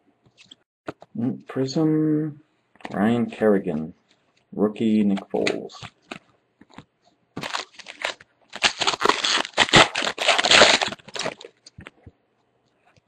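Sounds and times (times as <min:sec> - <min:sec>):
foil wrapper tearing and crinkling: 0:07.4 - 0:11.7.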